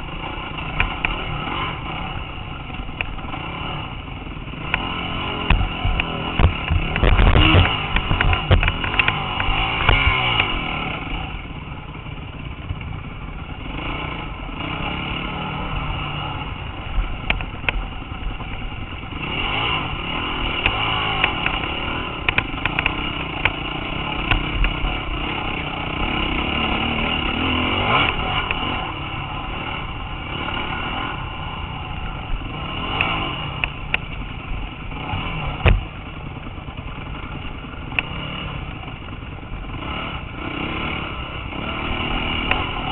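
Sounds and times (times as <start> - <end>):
dirt bike engine revving: 0.0 - 42.9
bike clattering over bumps: 4.7 - 10.6.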